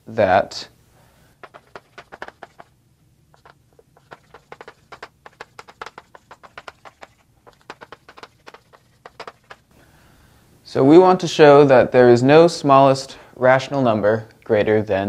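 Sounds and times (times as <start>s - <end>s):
chalk writing on a blackboard: 1.4s - 2.7s, 3.4s - 9.6s.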